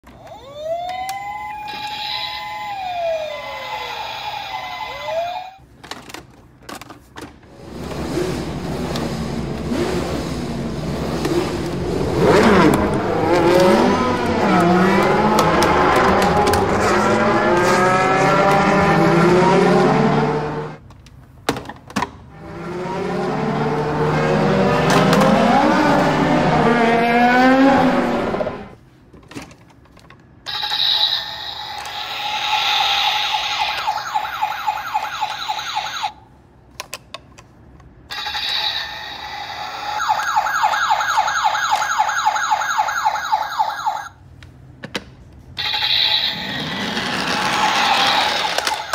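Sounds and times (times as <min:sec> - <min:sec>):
toy siren wailing: 0:00.2 - 0:05.6, 0:30.5 - 0:36.2, 0:38.1 - 0:44.2, 0:45.6 - 0:48.9
electronic engine revving: 0:07.6 - 0:20.8, 0:22.3 - 0:28.8, 0:30.5 - 0:36.1, 0:38.1 - 0:43.9, 0:45.6 - 0:48.9.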